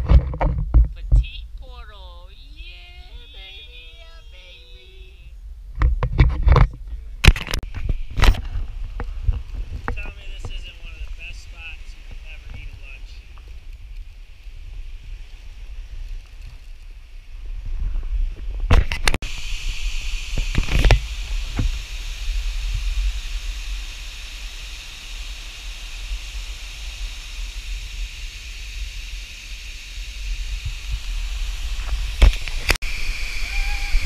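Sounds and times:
wind rumbling on microphone: 0.0s - 3.3s, 5.0s - 34.0s
waterfall rushing: 32.4s - 34.0s.

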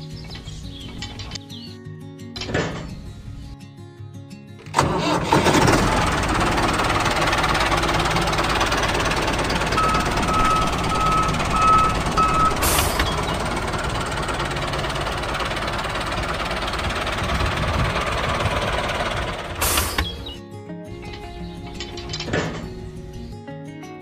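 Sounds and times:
vehicle engine running: 4.6s - 20.4s
reversing alarm beeps: 9.8s - 13.2s
brief hiss: 19.6s - 20.0s.

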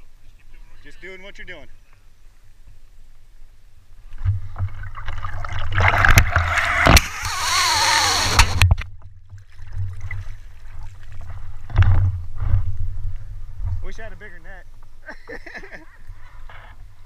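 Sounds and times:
water splashing around a boat: 9.2s - 11.8s.

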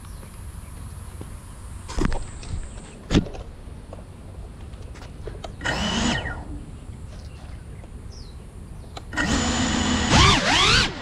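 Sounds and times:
low outdoor rumble: 0.0s - 10.2s
drone motors whirring: 5.5s - 7.6s, 8.9s - 11.0s.

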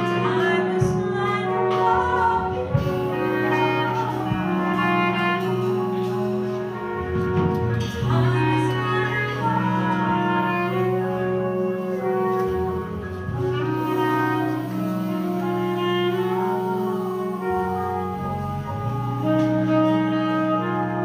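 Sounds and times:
jazz horn section playing chords: 0.0s - 21.0s.

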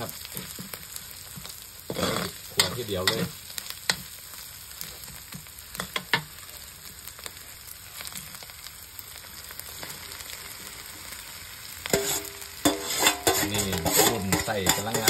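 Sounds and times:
chilies sizzling in hot oil: 0.0s - 15.0s
metal spatula scraping a wok: 0.2s - 4.0s, 11.8s - 15.0s.

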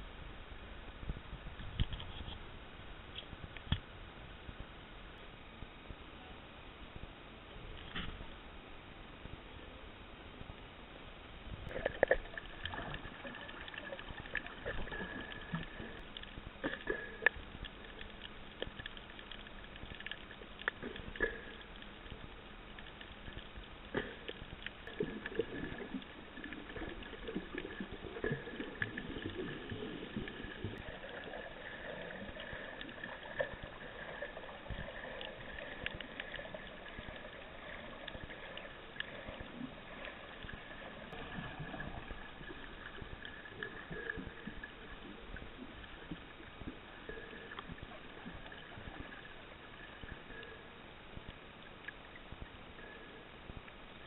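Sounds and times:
water gurgling underwater: 11.6s - 50.6s
sharp clicks and crackles: 11.7s - 30.8s.

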